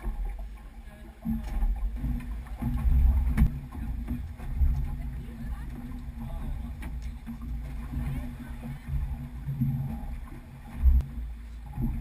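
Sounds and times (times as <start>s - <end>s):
low rumbling on a boat: 0.0s - 12.0s.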